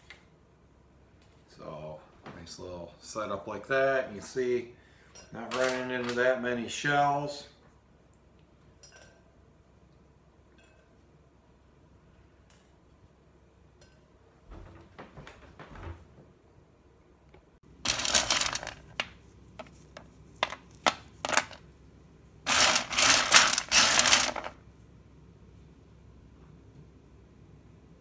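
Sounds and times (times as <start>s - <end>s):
nuts rattling on a metal tray: 17.9s - 19.0s, 20.4s - 21.6s, 22.5s - 24.6s.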